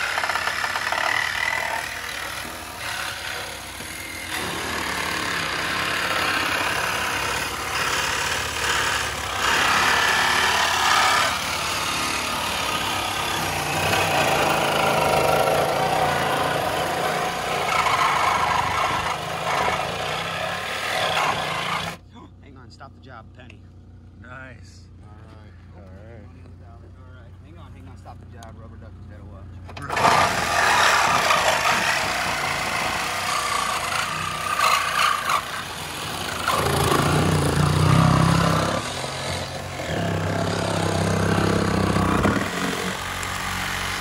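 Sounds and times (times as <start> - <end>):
reciprocating saw cutting metal: 0.0 - 22.0, 29.8 - 44.0.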